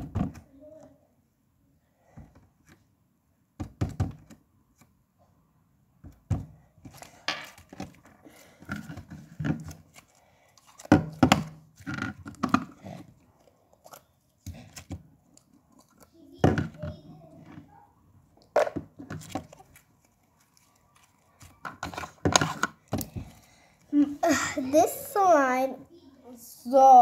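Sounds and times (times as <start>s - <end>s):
wet squishing slime: 6.9s - 16.4s, 19.2s - 22.2s.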